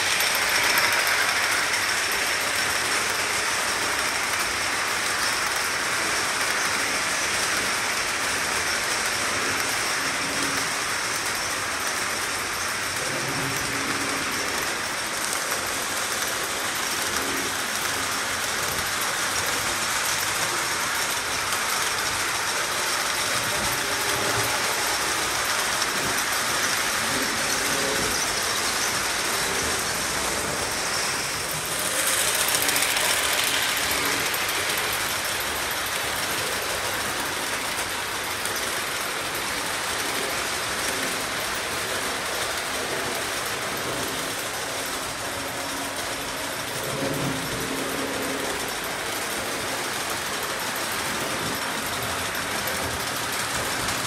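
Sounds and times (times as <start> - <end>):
model train wheels clattering: 0.0 - 54.0.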